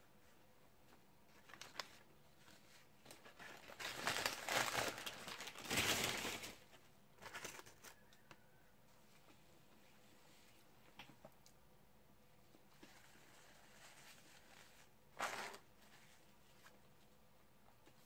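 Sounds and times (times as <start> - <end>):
paper wrapper crinkling: 1.3 - 8.1, 12.8 - 16.8.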